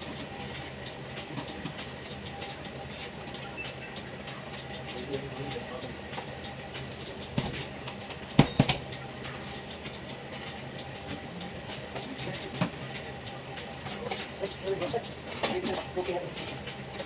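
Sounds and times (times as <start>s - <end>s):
kitchen machine hum: 0.0s - 17.0s
knocks and clicks in metal box: 8.3s - 8.8s.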